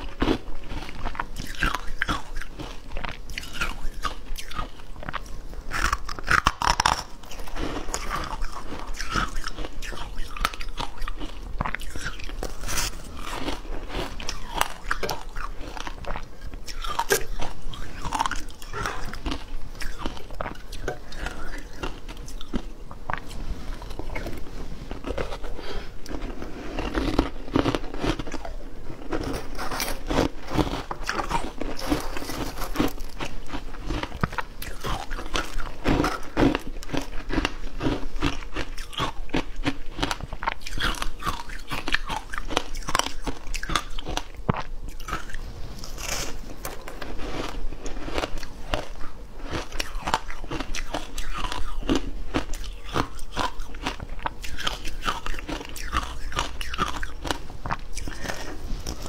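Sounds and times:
chewing crunchy ice: 0.0s - 59.0s.

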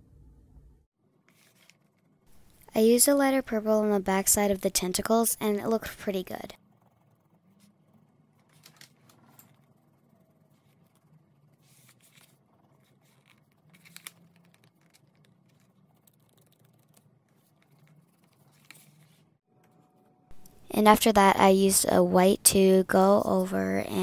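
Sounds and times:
pencil scratching on paper: 6.5s - 8.6s.

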